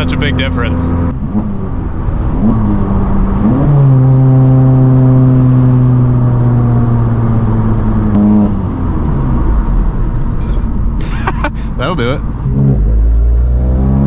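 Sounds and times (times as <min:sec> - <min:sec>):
car engine revving on downshifts: 0:00.9 - 0:09.6, 0:12.4 - 0:14.0.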